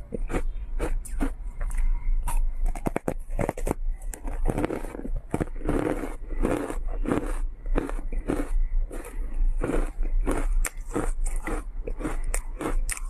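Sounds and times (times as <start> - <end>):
ice being bitten and crunched: 2.7 - 13.0.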